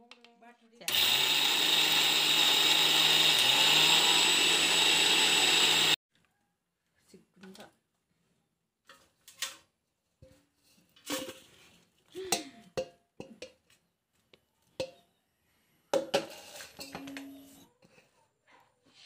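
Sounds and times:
metal jar and bowl clinking: 16.0 - 17.5.

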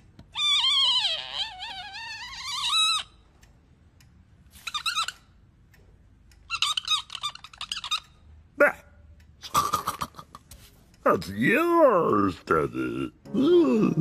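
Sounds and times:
high-pitched squeaky warbling: 0.4 - 3.2.

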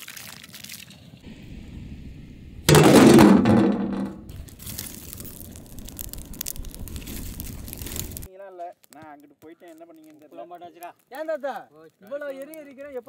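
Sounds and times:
loud thud-like burst: 2.7 - 4.3
wood fire crackling: 4.3 - 13.0.

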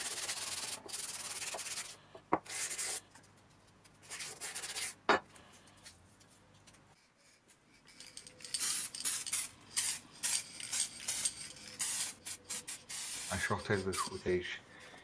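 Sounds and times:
aerosol spray can hissing: 8.4 - 13.6.

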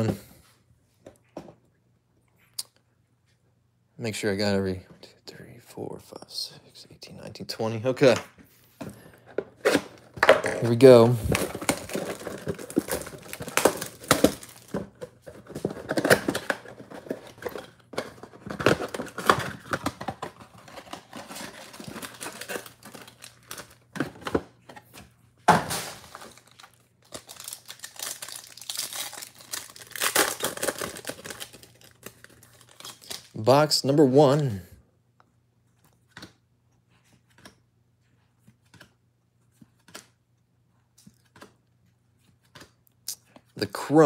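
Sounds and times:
card-pack wrappers handled: 9.6 - 24.9, 25.7 - 33.4
plastic shrink wrap crinkling: 10.2 - 23.9, 25.7 - 33.4.

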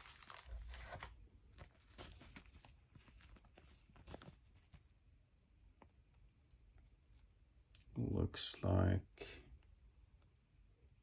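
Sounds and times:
plastic bag crinkling: 0.0 - 4.8.

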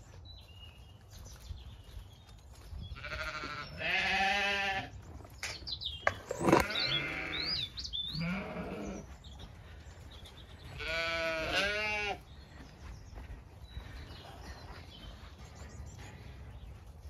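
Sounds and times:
birds chirping: 0.0 - 17.0
sheep bleating: 3.0 - 4.9, 6.4 - 9.0, 10.8 - 12.2.

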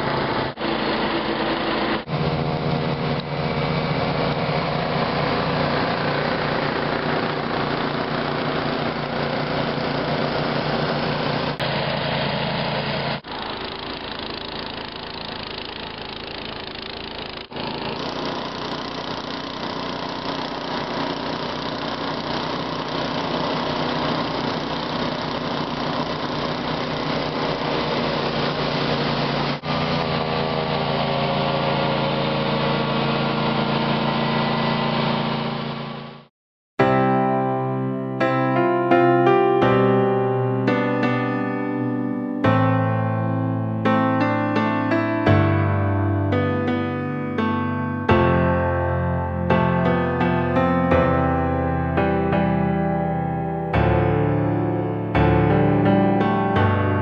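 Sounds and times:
mower engine running under load: 0.0 - 36.3, 37.2 - 57.0
snow blower throwing snow: 0.0 - 36.3.

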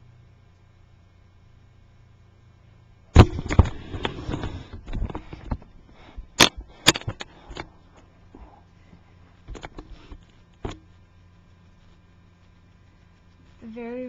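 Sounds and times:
laptop handling knocks and bumps: 3.2 - 7.7.

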